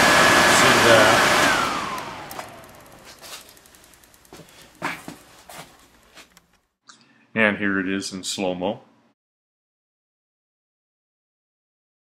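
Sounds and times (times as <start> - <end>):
blower motor whine winding down: 0.0 - 4.4.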